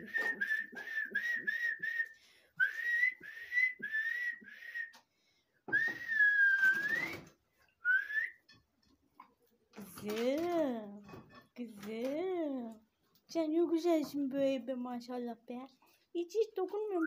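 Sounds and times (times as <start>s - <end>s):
person whistling: 0.0s - 5.0s, 5.7s - 8.4s.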